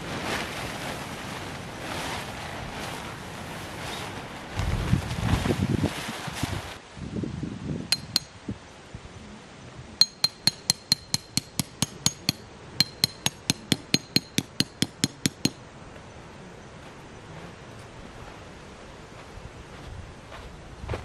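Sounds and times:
tent fabric rustling: 0.0s - 6.8s
tent peg hammered into ground: 7.9s - 8.3s, 10.0s - 15.6s.

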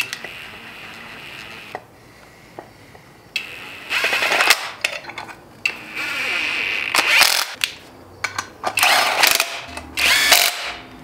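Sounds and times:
cordless drill driving bolts: 8.8s - 10.8s.

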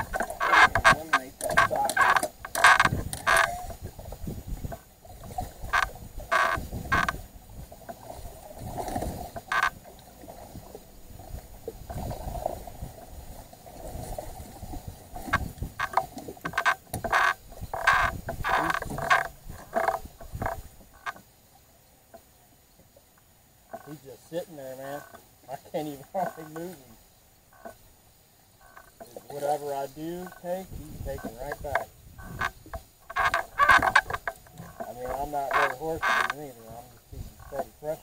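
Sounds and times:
fishing reel clicking: 0.0s - 3.6s.

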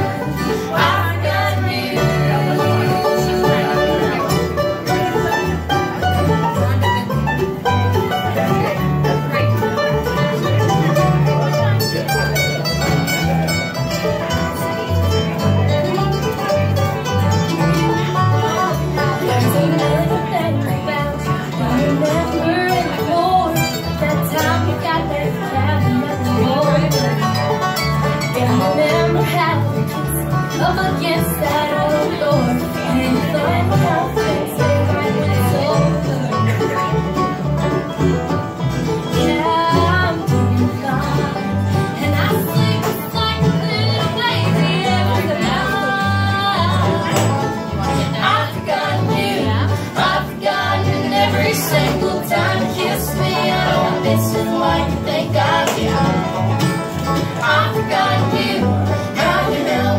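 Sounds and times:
acoustic guitar: 0.0s - 59.9s
plucked and bowed strings: 0.0s - 59.9s
upright bass: 0.0s - 59.9s.

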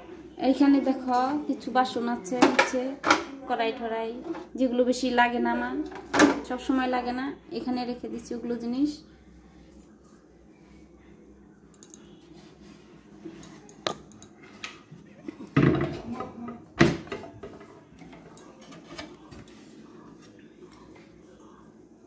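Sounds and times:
pots and utensils clattering: 2.2s - 3.3s, 5.9s - 6.7s, 14.0s - 19.6s.

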